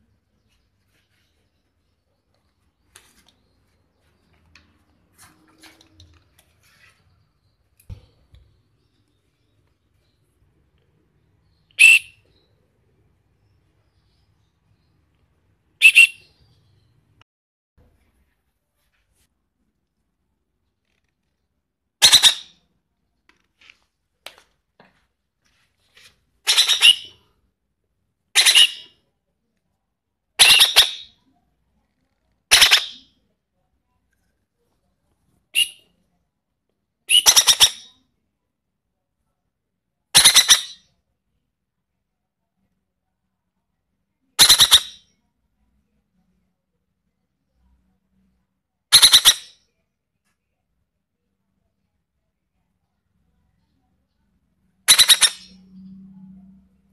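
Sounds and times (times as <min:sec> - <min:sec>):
faint rustling and handling noise: 0:00.0 - 0:11.2, 0:17.8 - 0:21.7, 0:23.0 - 0:26.4
parakeet begging squawks: 0:11.7 - 0:12.2, 0:15.8 - 0:16.3, 0:22.0 - 0:22.6, 0:26.4 - 0:27.2, 0:28.4 - 0:28.9, 0:30.4 - 0:31.1, 0:32.5 - 0:33.1, 0:35.6 - 0:35.8, 0:37.1 - 0:37.9, 0:40.2 - 0:40.8, 0:44.4 - 0:45.0, 0:48.9 - 0:49.6, 0:54.9 - 0:55.6.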